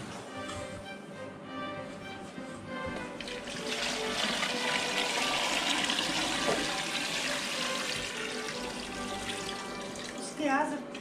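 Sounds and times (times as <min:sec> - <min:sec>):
water pouring into a pot: 0:03.2 - 0:10.4.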